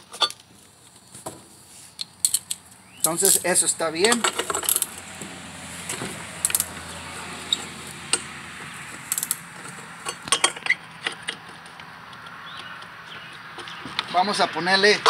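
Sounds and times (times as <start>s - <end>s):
metallic clicks of tool and parts: 2.0s - 3.4s, 4.0s - 5.0s, 6.4s - 6.8s, 9.1s - 9.4s.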